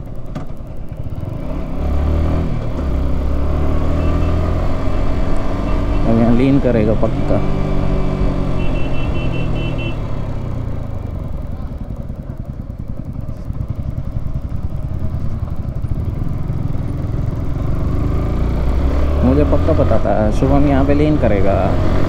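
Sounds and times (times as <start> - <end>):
low road rumble: 0.0 - 22.0
motorcycle engine: 0.0 - 22.0
short high beeps: 8.6 - 9.9.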